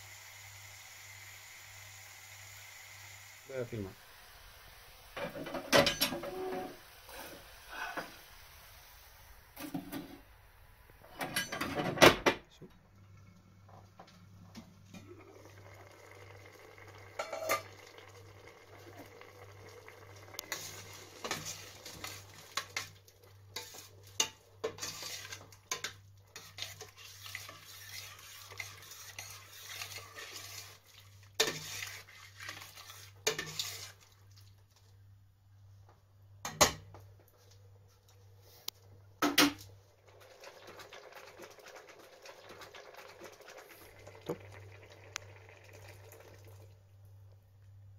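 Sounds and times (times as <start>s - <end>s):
metal cookware clanking: 5.2s - 6.2s, 11.1s - 12.0s, 17.2s - 17.7s
spoon scraping a steel pot: 24.6s - 30.8s, 31.4s - 34.0s.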